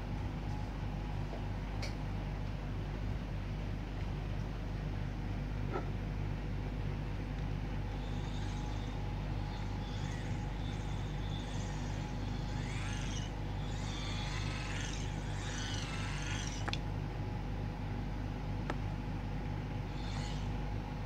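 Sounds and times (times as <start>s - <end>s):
hand-cranked motor whirring: 7.8s - 16.8s, 19.8s - 20.6s
high squeaks: 8.0s - 16.7s, 19.9s - 20.5s.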